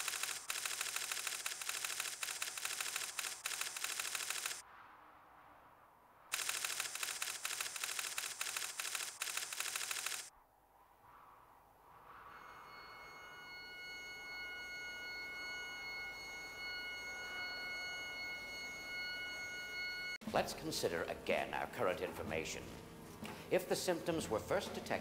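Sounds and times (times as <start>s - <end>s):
rapid typewriter-like clatter: 0.0s - 4.6s, 6.3s - 10.3s.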